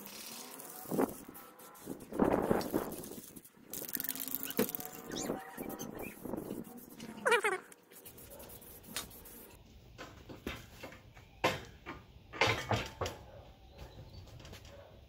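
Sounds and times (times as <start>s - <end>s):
faint spray can hiss: 0.0s - 4.9s
metal clunks and knocks: 10.0s - 13.2s.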